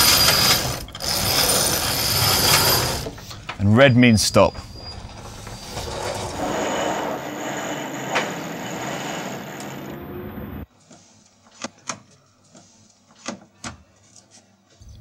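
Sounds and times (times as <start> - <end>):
line rasping: 0.0 - 3.6, 4.5 - 10.6.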